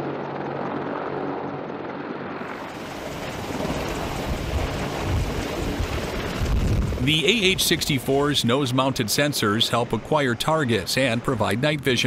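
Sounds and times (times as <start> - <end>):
helicopter engine and rotor drone: 0.0 - 12.0
wind buffeting microphone: 2.8 - 8.4.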